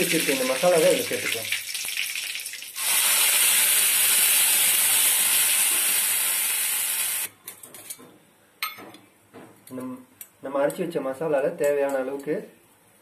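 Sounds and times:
paste sizzling in hot oil: 0.0s - 7.3s.

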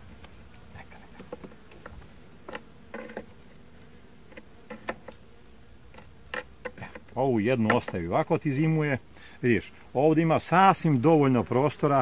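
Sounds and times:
honeybees buzzing: 0.0s - 12.0s
wooden hive frames knocking: 1.1s - 3.4s, 4.2s - 8.4s.

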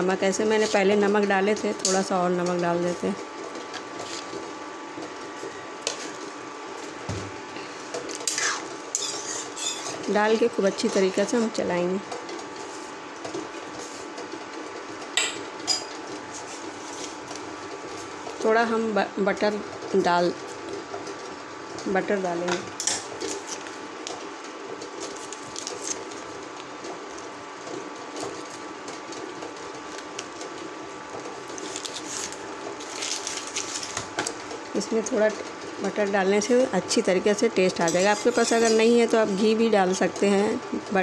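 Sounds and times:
mechanical hum with whine: 0.0s - 41.0s
metal spatula stirring: 8.2s - 10.0s, 37.6s - 39.5s.

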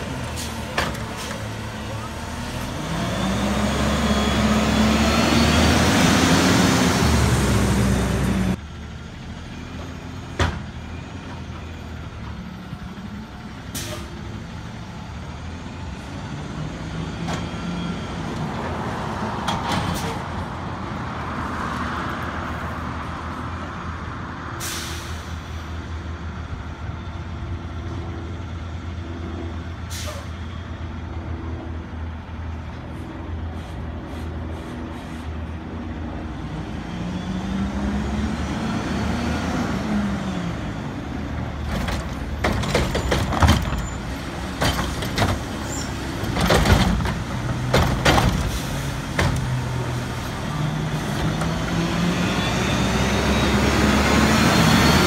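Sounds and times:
truck engine revving: 0.0s - 8.6s, 36.4s - 55.0s
air brake hisses: 13.7s - 14.2s, 24.6s - 25.4s, 29.9s - 30.3s.

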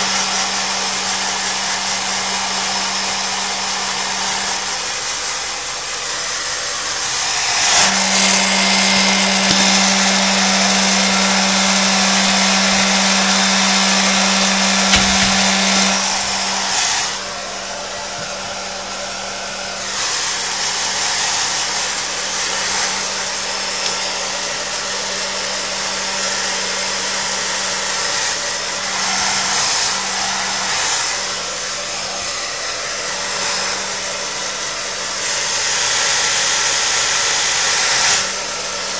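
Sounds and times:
hair dryer running: 0.0s - 38.9s.

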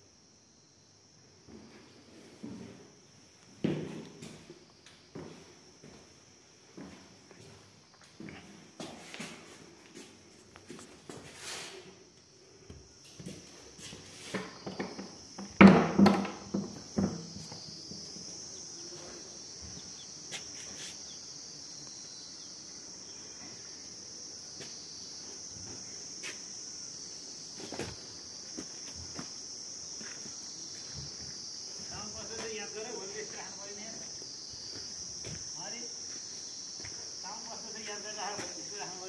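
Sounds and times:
insects trilling: 0.0s - 39.0s
footsteps scuffing on concrete: 6.8s - 11.7s, 13.1s - 14.6s, 16.8s - 21.1s, 25.7s - 26.5s, 27.6s - 29.4s, 30.0s - 32.6s, 34.0s - 38.6s.

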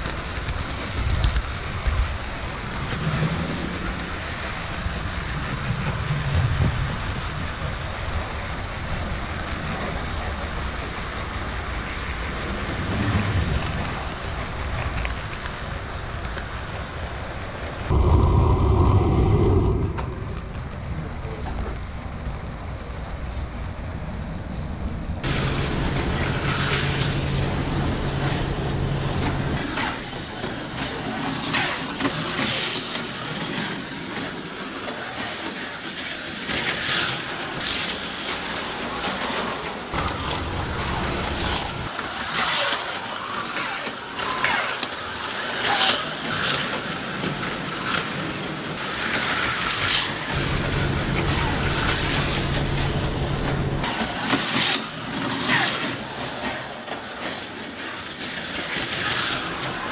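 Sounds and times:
low steady hum: 17.9s - 21.5s, 25.2s - 29.6s, 50.3s - 53.9s
slot car motors whirring: 25.2s - 31.2s, 40.0s - 42.1s, 50.3s - 55.3s.

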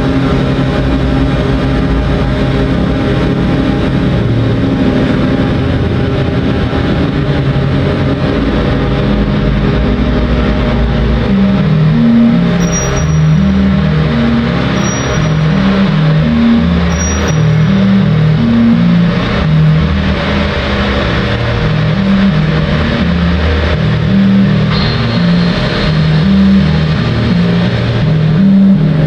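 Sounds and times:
low synthesizer notes: 0.0s - 29.0s
thin high tone: 11.2s - 19.0s.

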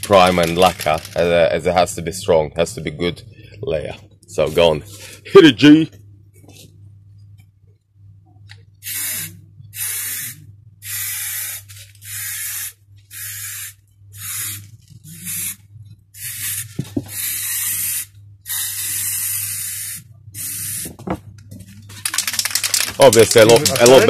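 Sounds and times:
aerosol spray can hissing: 8.8s - 15.6s, 16.2s - 20.9s.

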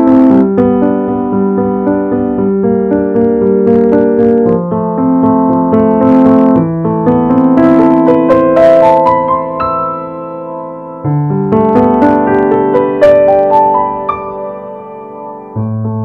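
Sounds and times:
slow solo piano piece: 0.0s - 16.0s.

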